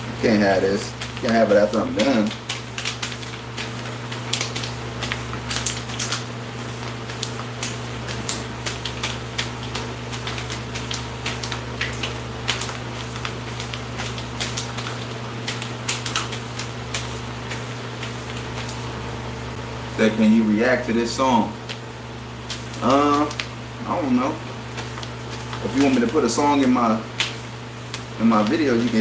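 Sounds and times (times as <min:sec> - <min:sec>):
steady low hum: 0:00.0 - 0:29.0
hair brush scratching hair: 0:22.5 - 0:29.0.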